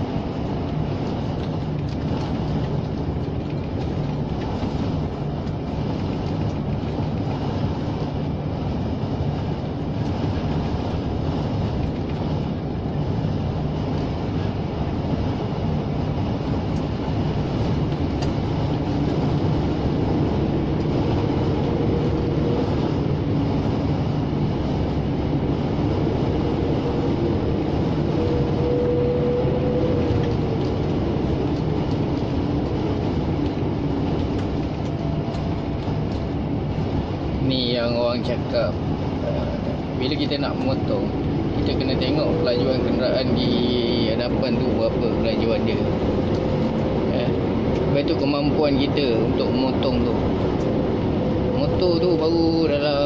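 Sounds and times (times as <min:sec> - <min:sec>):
lorry engine and road drone: 0:00.0 - 0:53.0
higher hum: 0:17.2 - 0:37.4.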